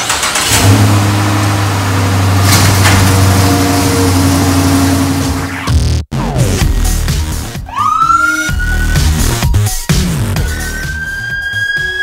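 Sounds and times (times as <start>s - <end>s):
car engine idling: 0.0s - 5.7s.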